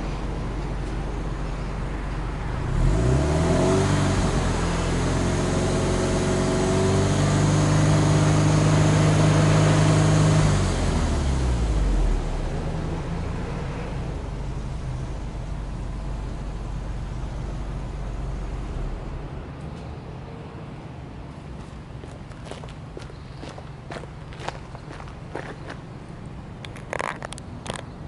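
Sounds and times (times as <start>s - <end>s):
car engine revving: 2.6s - 13.6s.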